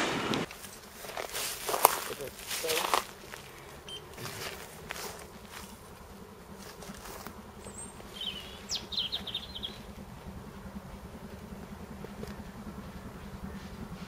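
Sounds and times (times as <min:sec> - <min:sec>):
faint low buzz: 0:00.0 - 0:14.0
bird chirping: 0:07.6 - 0:10.0.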